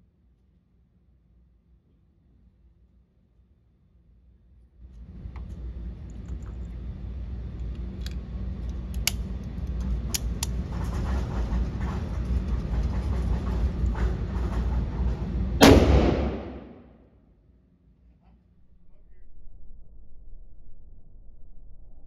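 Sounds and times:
steady low rumble: 4.6 - 17.1, 18.6 - 22.0
gunshot echoing indoors: 15.6 - 17.1.

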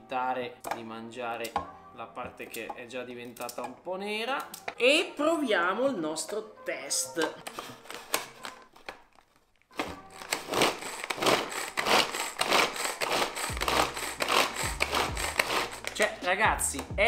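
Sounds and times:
pull-cord being pulled: 9.8 - 16.3
chopper blades whirring through carrots: 10.4 - 16.2.

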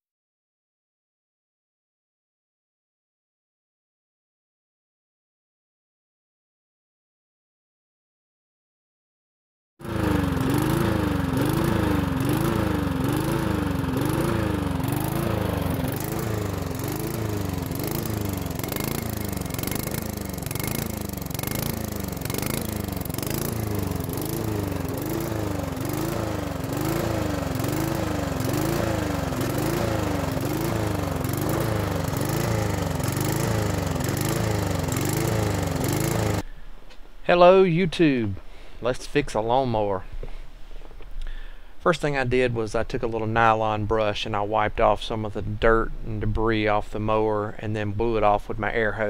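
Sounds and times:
lawn mower engine surging: 9.8 - 36.6.

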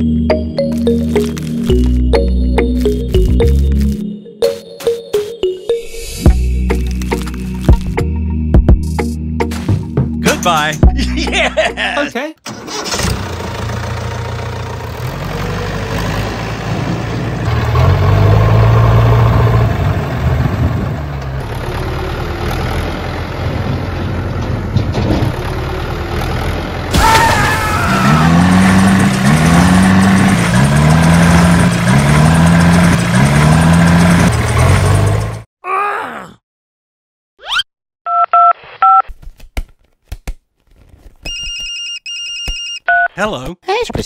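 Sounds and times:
tractor engine running: 0.0 - 5.3, 12.4 - 27.0, 27.9 - 35.4.

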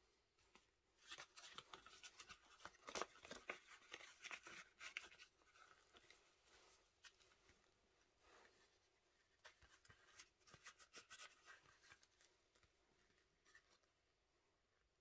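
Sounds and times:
paper banknotes rustling: 1.0 - 7.4.

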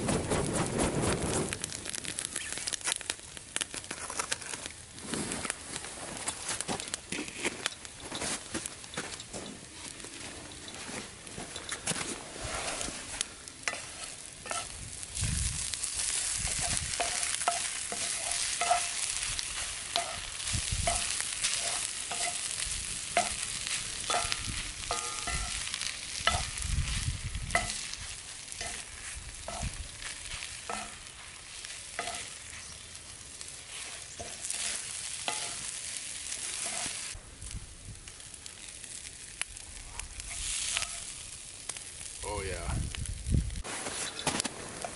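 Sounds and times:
food sizzling in a skillet: 1.3 - 5.2, 12.2 - 44.9
wooden spatula scraping a pan: 11.8 - 14.8, 15.6 - 22.6, 23.2 - 32.8, 33.6 - 35.8, 36.4 - 37.1.

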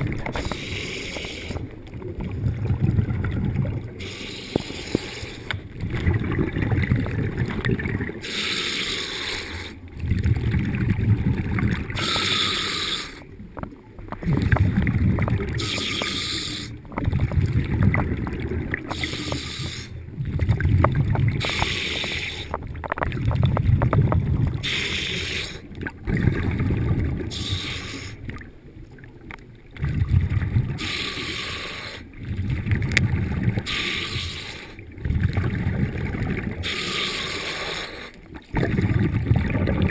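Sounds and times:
exhaled bubbles rumbling: 0.0 - 39.9
regulator hissing inhale: 0.4 - 1.7, 4.0 - 5.6, 8.2 - 9.8, 12.0 - 13.2, 15.6 - 16.8, 18.9 - 20.0, 21.4 - 22.5, 24.6 - 25.7, 27.3 - 28.2, 30.8 - 32.1, 33.6 - 34.8, 36.6 - 38.2.

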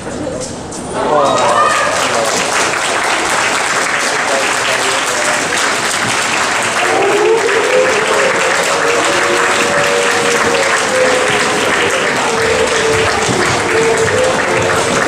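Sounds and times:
crowd applauding: 1.0 - 15.0
held melody of long notes: 2.9 - 15.0.

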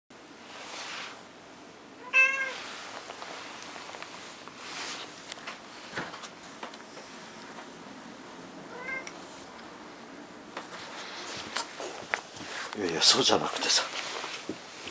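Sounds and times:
soft rustling: 0.4 - 1.3, 2.3 - 7.8, 10.6 - 14.9
cat meowing: 2.0 - 2.6, 8.7 - 9.1.

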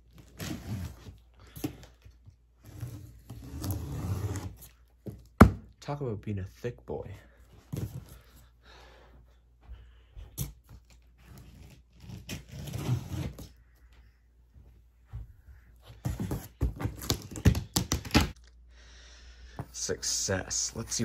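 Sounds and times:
tape and cardboard ripping: 0.1 - 2.0, 10.4 - 13.5, 16.0 - 18.4.

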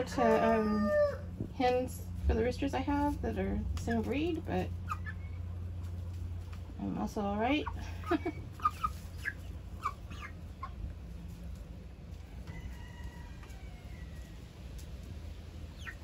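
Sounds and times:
chickens clucking: 0.0 - 16.0.

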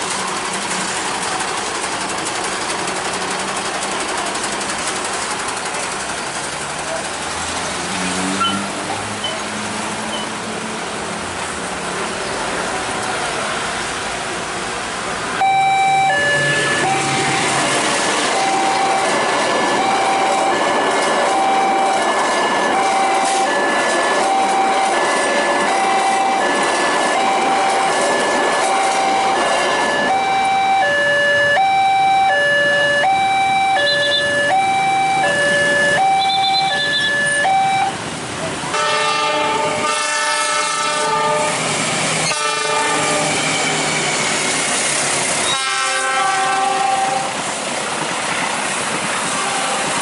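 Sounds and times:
road traffic noise: 0.0 - 50.0
level crossing two-tone alarm: 15.4 - 17.6, 18.2 - 38.0.

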